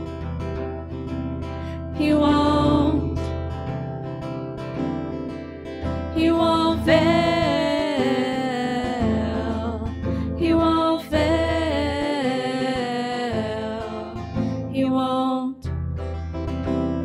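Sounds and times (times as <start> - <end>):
strummed acoustic guitar: 0.0 - 15.0, 15.7 - 17.0
women singing: 2.0 - 3.3, 6.2 - 15.6.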